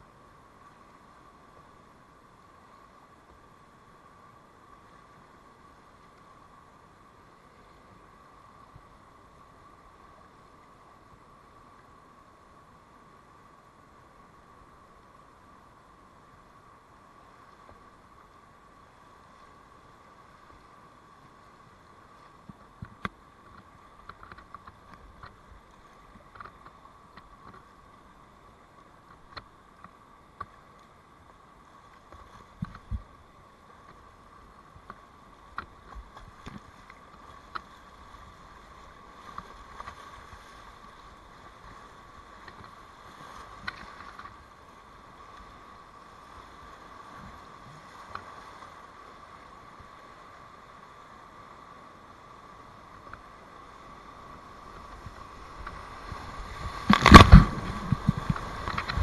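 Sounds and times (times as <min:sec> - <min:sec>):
rushing whitewater rapid: 0:00.0 - 0:59.0
kayak paddle splashes: 0:53.2 - 0:59.0.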